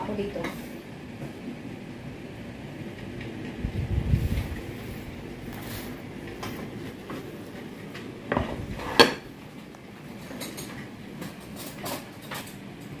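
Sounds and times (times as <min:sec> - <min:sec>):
cutlery clinking: 0:10.2 - 0:12.7.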